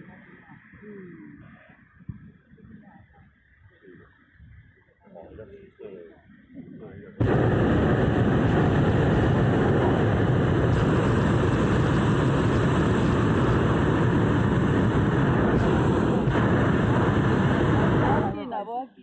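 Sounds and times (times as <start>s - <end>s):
propane burner rushing blast: 7.2s - 18.5s.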